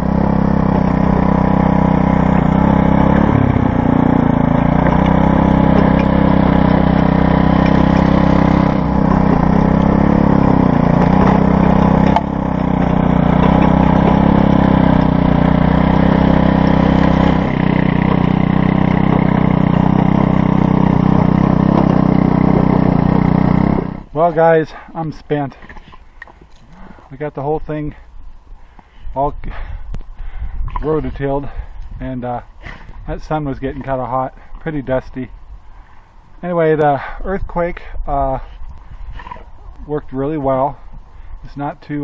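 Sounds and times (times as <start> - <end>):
tiller engine running: 0.0 - 25.2
tines churning soil: 0.0 - 27.8.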